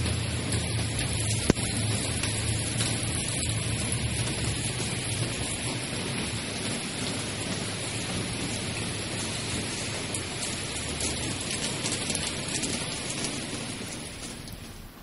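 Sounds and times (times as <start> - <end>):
steady rain hiss: 0.0 - 15.0.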